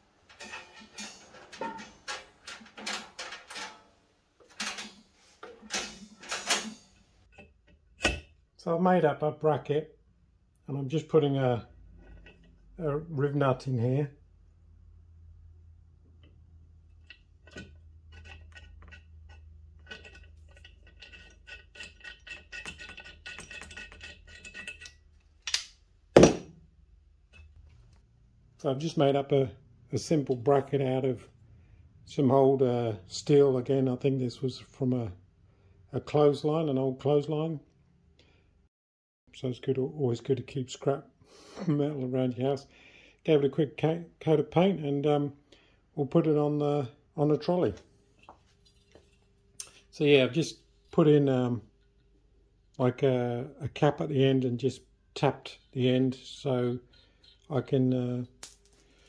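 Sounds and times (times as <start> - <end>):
metal parts clattering: 0.2 - 7.1, 17.4 - 25.6, 56.5 - 57.6.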